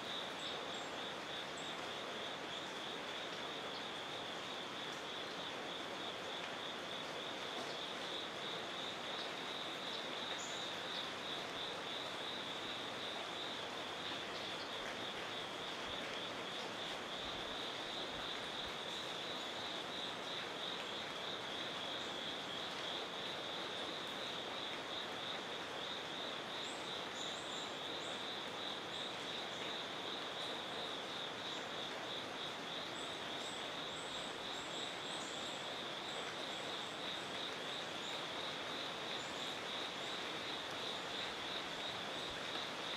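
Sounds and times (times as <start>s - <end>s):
outdoor hiss: 0.0s - 42.9s
insect chorus trilling: 7.8s - 14.8s, 17.1s - 42.9s.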